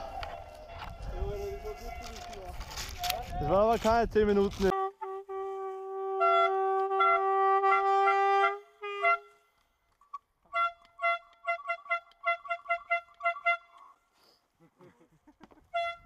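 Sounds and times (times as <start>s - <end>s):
air horn blasts and toots: 0.0s - 2.6s, 4.7s - 9.6s, 10.4s - 14.0s, 15.7s - 16.0s.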